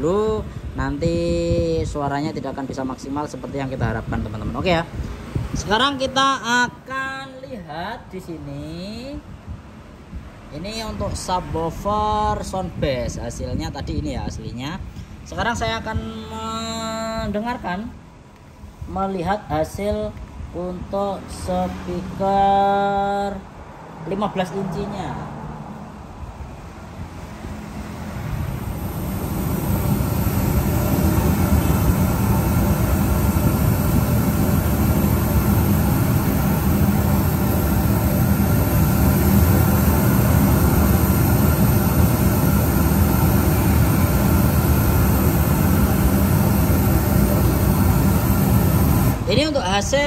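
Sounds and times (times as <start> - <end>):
rushing test noise through speaker: 24.1 - 50.0.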